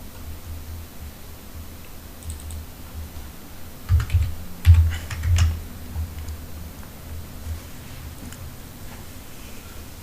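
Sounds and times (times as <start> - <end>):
keyboard keys tapping: 2.2 - 2.6, 3.9 - 6.4.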